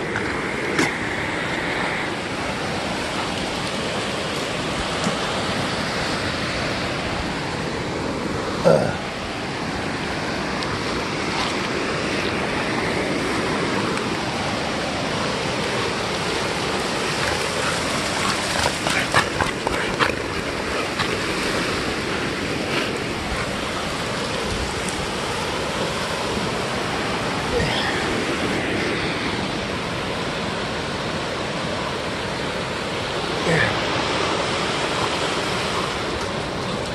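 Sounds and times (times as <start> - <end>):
ocean surf breaking on beach: 0.0 - 36.9
sharp splashes and knocks: 17.1 - 21.8.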